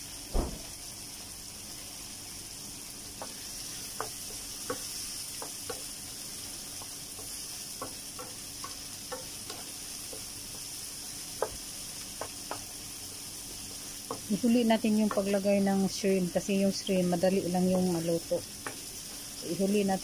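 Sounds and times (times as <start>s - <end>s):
vegetables sizzling in a frying pan: 0.0s - 20.0s
spatula knocking and scraping pan: 3.1s - 6.0s, 6.7s - 12.8s, 13.7s - 15.4s, 18.6s - 19.2s.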